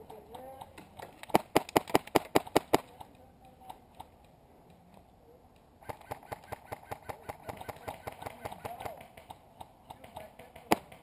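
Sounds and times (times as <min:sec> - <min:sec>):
airsoft rifle shots: 0:01.3 - 0:03.0, 0:05.8 - 0:11.0.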